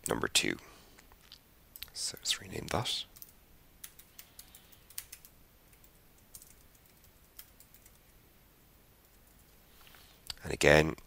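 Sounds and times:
faint keyboard typing: 1.1s - 8.2s, 9.0s - 10.0s.

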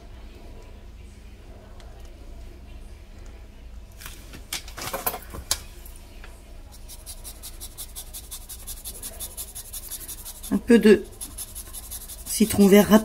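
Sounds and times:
lime scraping on metal grater: 6.8s - 13.0s.

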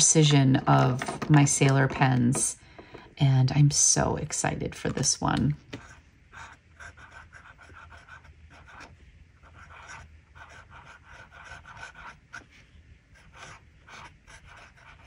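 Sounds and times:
pen nib scratching paper: 5.7s - 15.0s.

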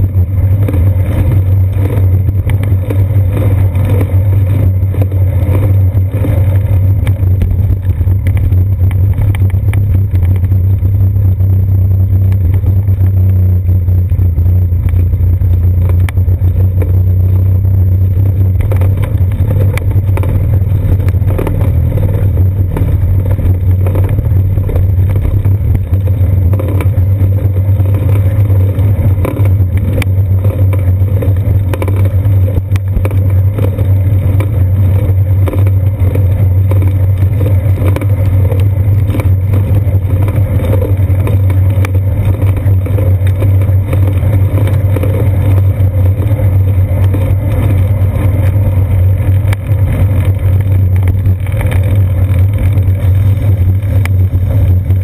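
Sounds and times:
wind and road rumble: 0.0s - 55.0s.

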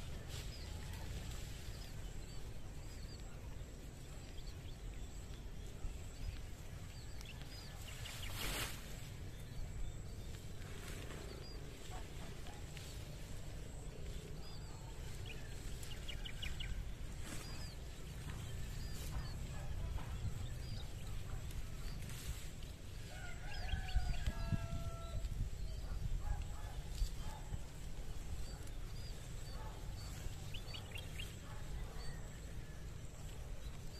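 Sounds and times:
small birds chirping: 0.0s - 33.9s
wind rumble on microphone: 9.1s - 33.9s.

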